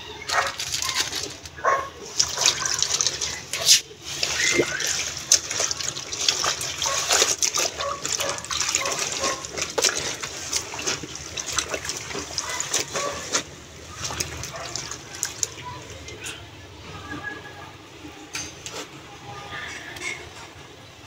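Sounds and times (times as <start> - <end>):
water sloshing in basin: 0.0 - 19.2
hands rubbing wet fabric: 0.3 - 16.2.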